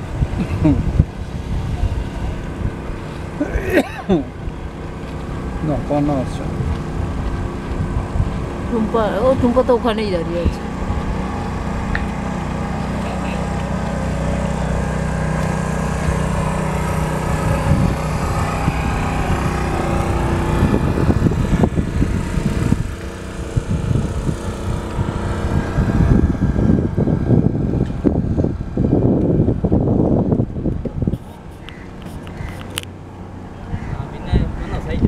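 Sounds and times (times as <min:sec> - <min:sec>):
low rumbling gusts: 0:00.0 - 0:35.0
motorboat engine running: 0:00.0 - 0:35.0.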